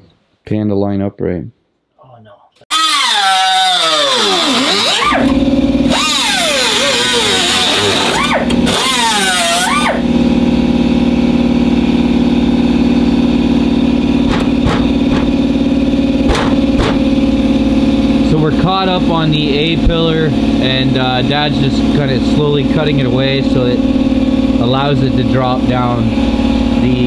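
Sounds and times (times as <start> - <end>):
power tool motor whine: 2.7 - 10.2
steady machine drone: 2.7 - 27.0.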